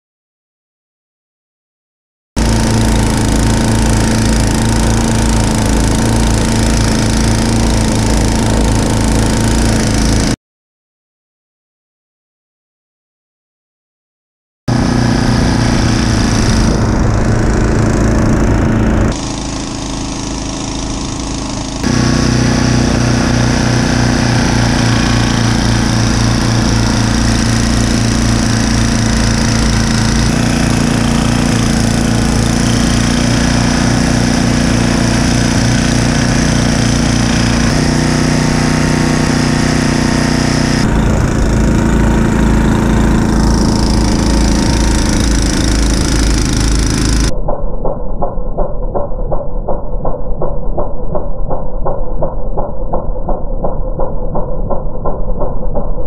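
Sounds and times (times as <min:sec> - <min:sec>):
snowblower engine running: 0:02.4 - 0:10.4, 0:14.7 - 0:47.3.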